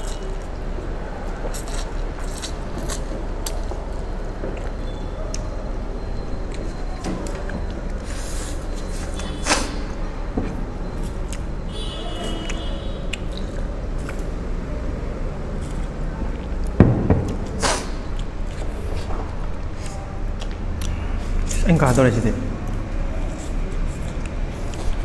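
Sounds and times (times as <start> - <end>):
slurping and chewing noodles: 1.4 - 3.7
steady low hum: 12.8 - 25.0
thump: 16.8 - 17.8.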